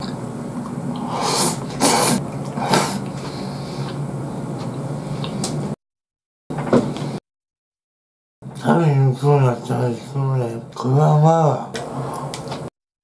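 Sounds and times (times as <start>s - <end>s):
man chewing food: 0.0s - 5.8s.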